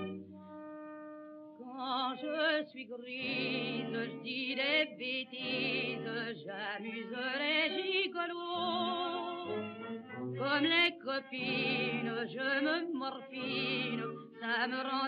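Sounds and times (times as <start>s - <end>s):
orchestral accompaniment: 0.0s - 1.3s, 9.4s - 10.4s
woman singing with vibrato: 1.6s - 9.8s, 10.4s - 15.0s.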